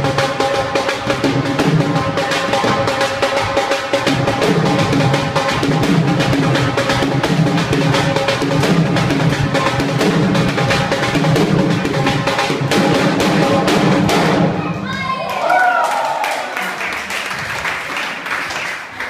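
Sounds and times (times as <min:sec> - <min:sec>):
dhol drumming: 0:00.0 - 0:14.9.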